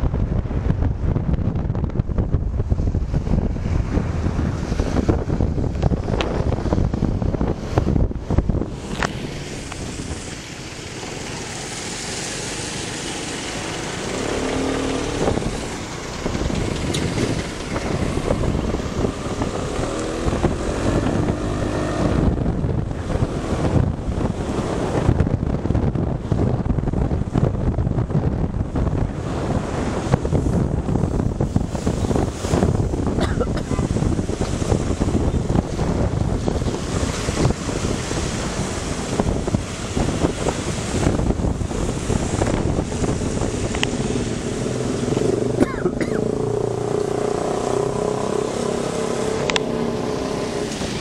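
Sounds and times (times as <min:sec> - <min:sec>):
wind buffeting microphone: 0:00.0 - 0:51.0
motorcycle engine: 0:01.9 - 0:25.3, 0:33.8 - 0:51.0.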